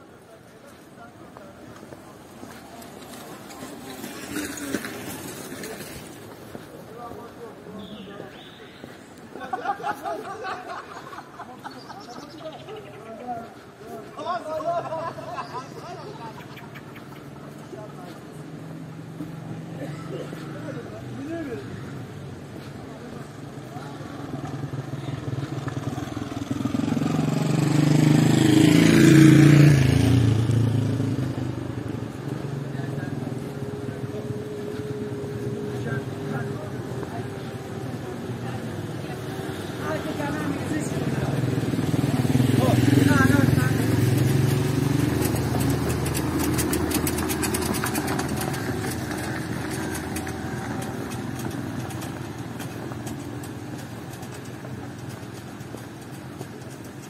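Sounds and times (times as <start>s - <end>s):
tyres crunching on gravel: 0.4s - 15.9s, 31.8s - 57.0s
motorcycle engine passing by: 2.5s - 6.3s, 12.0s - 57.0s.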